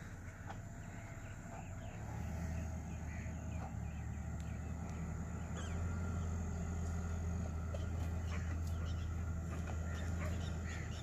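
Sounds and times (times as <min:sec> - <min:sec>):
birds chirping: 0:00.0 - 0:11.0
engine running at low revs: 0:00.0 - 0:11.0.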